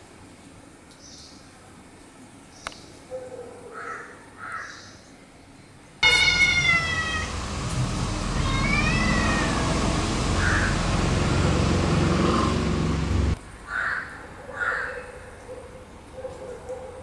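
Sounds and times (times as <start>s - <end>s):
steady low rumble: 6.0s - 13.4s
harsh bird calls: 8.2s - 14.0s.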